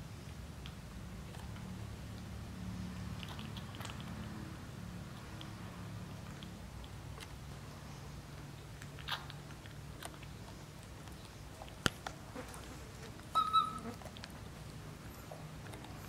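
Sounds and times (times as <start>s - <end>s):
low steady hum: 0.0s - 16.0s
baby monkey squealing: 13.4s - 14.0s.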